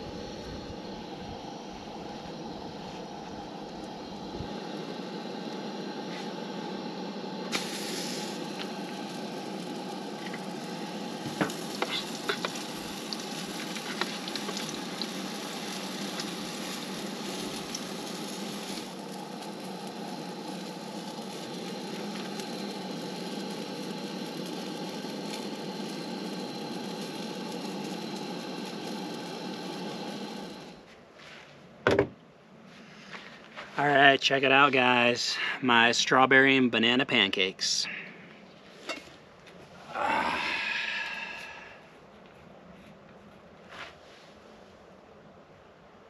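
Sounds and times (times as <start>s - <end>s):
pancakes sizzling in a pan: 7.5s - 30.8s.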